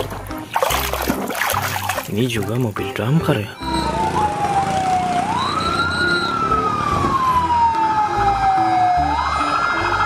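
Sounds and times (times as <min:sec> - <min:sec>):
fire engine siren wailing: 0:03.6 - 0:10.0.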